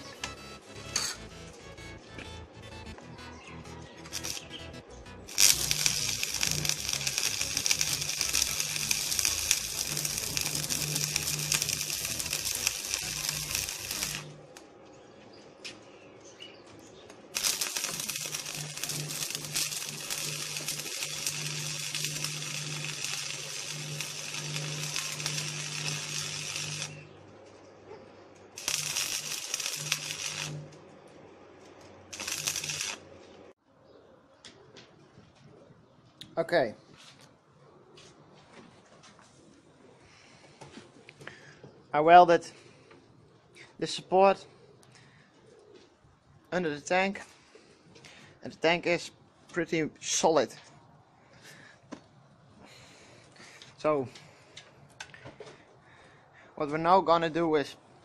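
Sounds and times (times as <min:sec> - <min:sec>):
arc welding crackling: 0:03.8 - 0:14.7, 0:17.2 - 0:27.6, 0:28.4 - 0:33.6.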